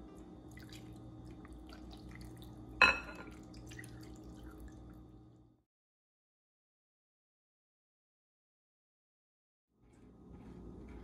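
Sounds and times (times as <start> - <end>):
low steady hum: 0.0 - 5.6
small wet drips: 0.4 - 2.6, 3.3 - 5.1.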